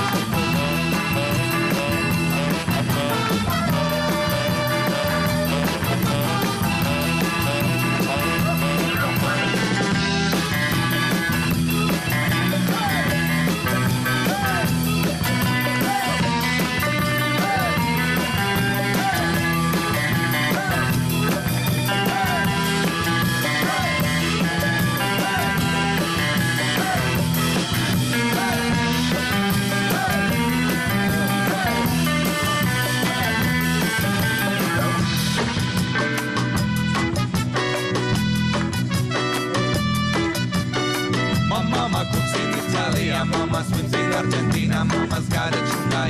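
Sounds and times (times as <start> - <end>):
upbeat pop song: 0.0 - 46.0.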